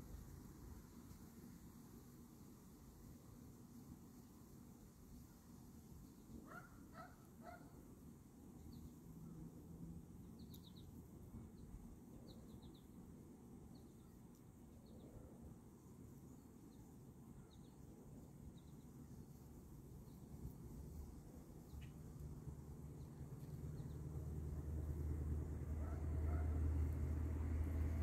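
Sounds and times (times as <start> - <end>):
small birds chirping: 8.6 - 9.4, 10.0 - 15.3, 15.9 - 25.0
faint low rumble: 17.4 - 28.0.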